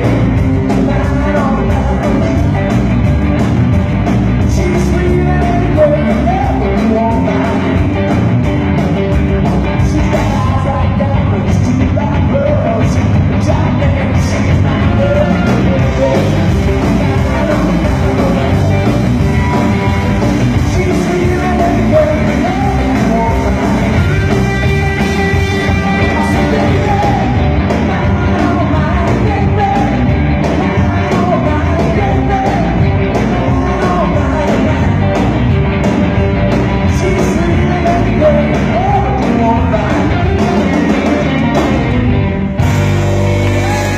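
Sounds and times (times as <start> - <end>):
person singing: 0.0 - 2.7, 4.4 - 8.0, 9.6 - 35.3, 36.8 - 41.7, 43.2 - 43.9
blues-rock band music: 0.0 - 43.9.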